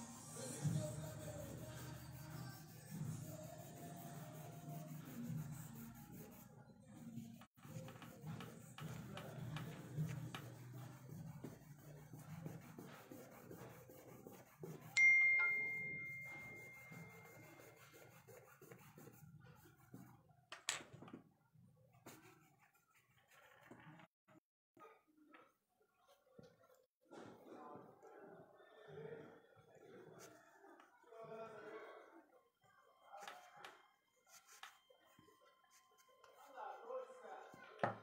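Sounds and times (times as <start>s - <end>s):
charcoal pencil scratching on paper: 0.2s - 20.2s, 22.0s - 24.1s, 33.1s - 36.8s
bell-like ding: 15.0s - 17.4s.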